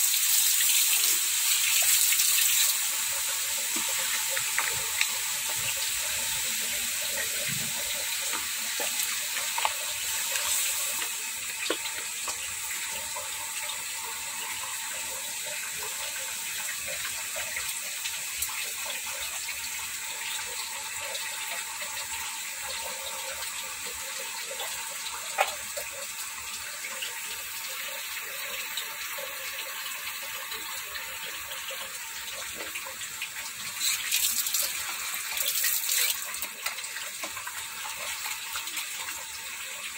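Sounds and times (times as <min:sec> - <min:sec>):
pot simmering with bubbling hiss: 0:00.0 - 0:39.9.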